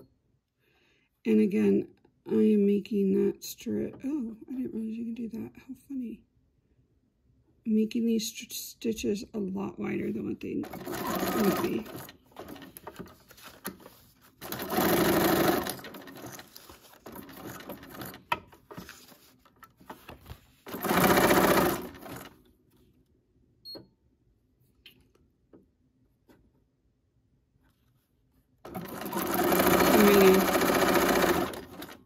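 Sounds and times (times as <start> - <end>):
sewing machine running: 10.6 - 13.0, 14.4 - 18.2, 20.7 - 22.4, 28.7 - 32.0.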